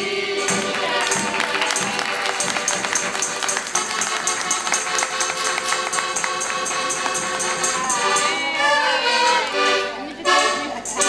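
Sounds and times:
tambourine jingling: 0:00.0 - 0:08.6, 0:10.8 - 0:11.0
accordion playing: 0:00.0 - 0:11.0.

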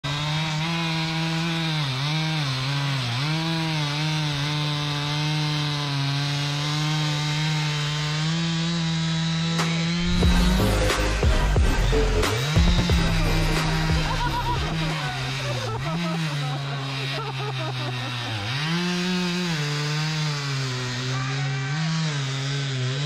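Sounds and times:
small engine running: 0:00.0 - 0:23.0.

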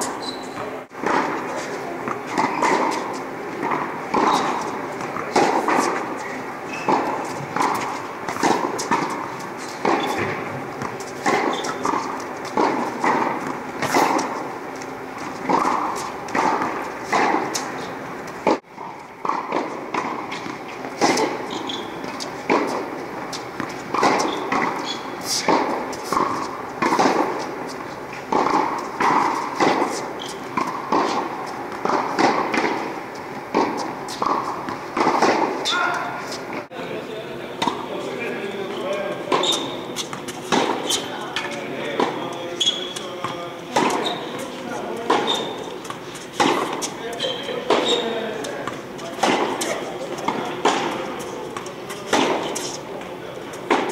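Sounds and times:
racket striking ball: 0:00.9 - 0:36.6, 0:39.2 - 0:53.9
ball bouncing on hard court: 0:06.7 - 0:14.4, 0:39.3 - 0:52.8.

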